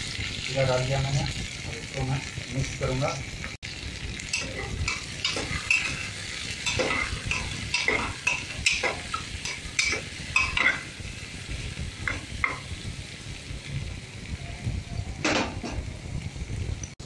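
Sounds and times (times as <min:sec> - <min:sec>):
onions sizzling in oil: 0:00.0 - 0:17.0
ladle scraping and clinking pot: 0:04.3 - 0:11.0.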